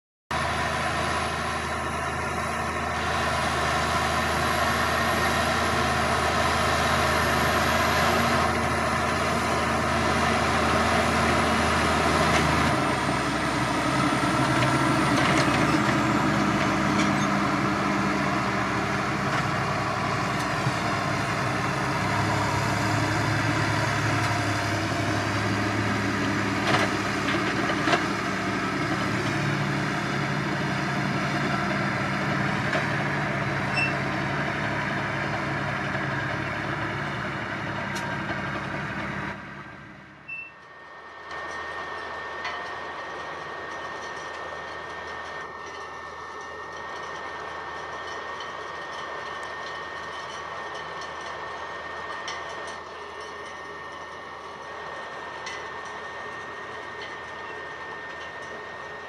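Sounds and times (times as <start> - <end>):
tractor diesel engine under load: 0.3 - 59.0.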